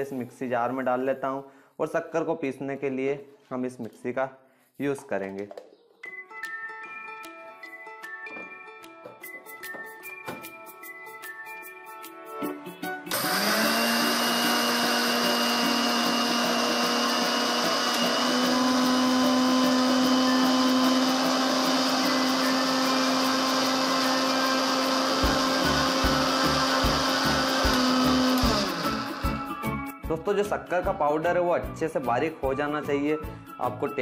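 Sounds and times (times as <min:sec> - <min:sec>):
mixer grinder whining: 0:13.1 - 0:29.7.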